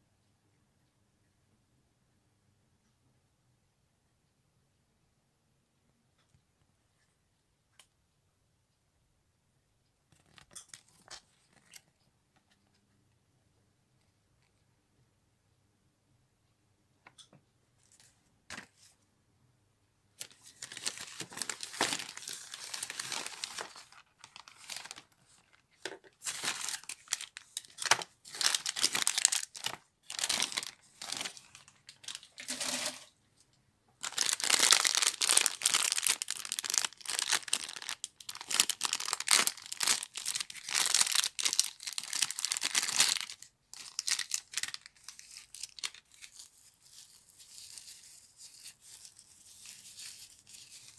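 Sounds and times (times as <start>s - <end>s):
packaging crinkled and torn: 20.2s - 33.1s, 34.0s - 50.9s.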